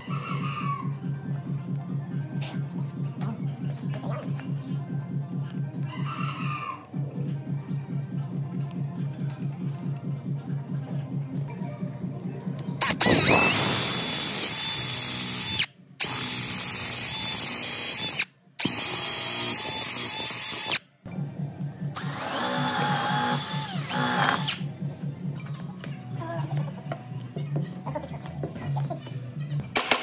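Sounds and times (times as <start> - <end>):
electric drill boring into wood: 12.8 - 20.8, 22.0 - 24.6.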